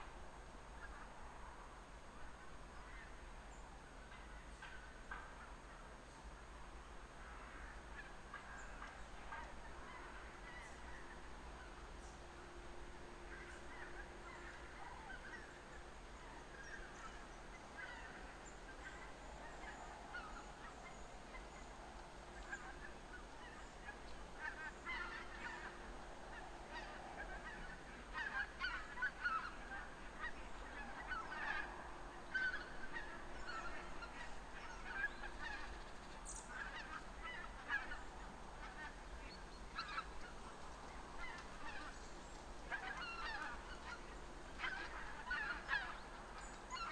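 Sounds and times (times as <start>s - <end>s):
geese honking: 12.9s - 21.7s, 22.4s - 40.4s, 41.1s - 46.9s.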